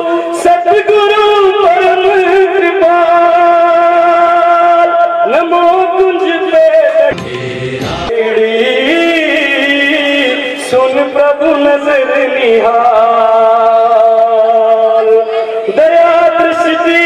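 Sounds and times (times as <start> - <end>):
person singing a prayer: 0.0 - 17.0
slow devotional melody: 6.1 - 17.0.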